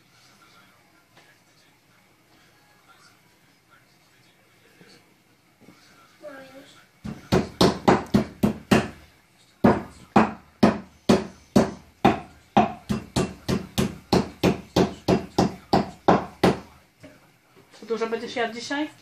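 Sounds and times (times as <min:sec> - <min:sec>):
meat mallet pounding on wood: 0:07.0 - 0:09.0, 0:09.6 - 0:16.7.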